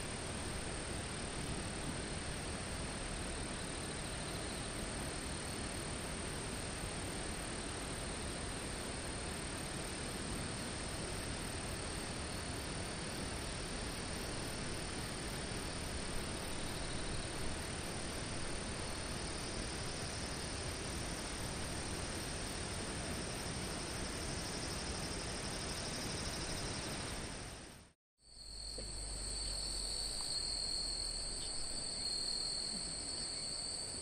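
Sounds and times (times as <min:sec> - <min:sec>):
steady hiss: 0:00.0 - 0:34.0
thin high steady tone: 0:28.2 - 0:34.0.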